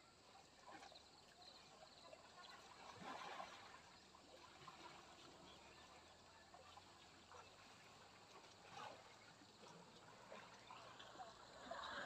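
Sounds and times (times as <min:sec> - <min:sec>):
trickling water: 0:06.1 - 0:11.8.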